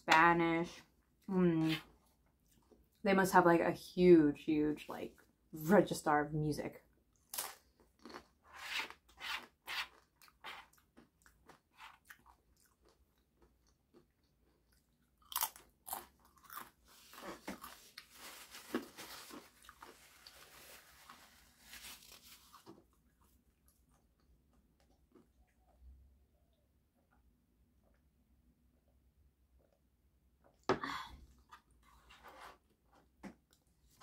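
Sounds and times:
crisp chip crunching: 0:07.2 - 0:08.4, 0:11.0 - 0:24.0.

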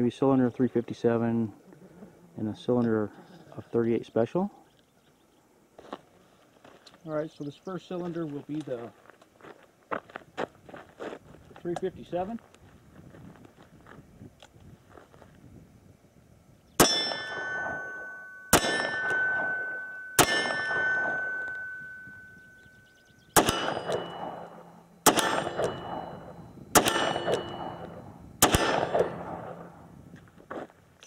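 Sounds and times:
steel target ringing: 0:16.8 - 0:29.9
revolver shots: 0:23.4 - 0:29.8.

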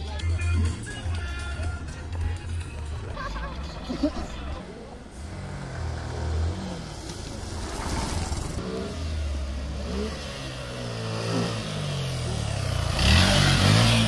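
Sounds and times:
motorcycle engine revving: 0:04.6 - 0:14.0.

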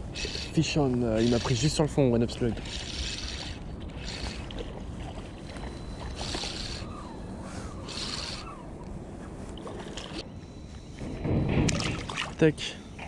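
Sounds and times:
fishing reel ticking: 0:00.0 - 0:01.8, 0:02.4 - 0:04.8, 0:05.4 - 0:08.6
short hissing swishes: 0:06.2 - 0:08.6.

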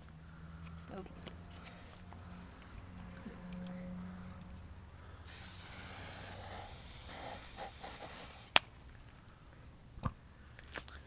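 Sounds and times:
aerosol can spraying: 0:05.3 - 0:08.6.

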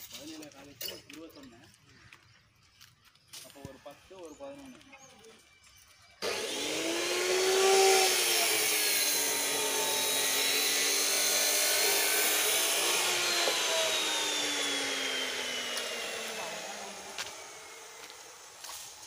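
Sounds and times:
engine drone with high whine: 0:06.2 - 0:19.0.

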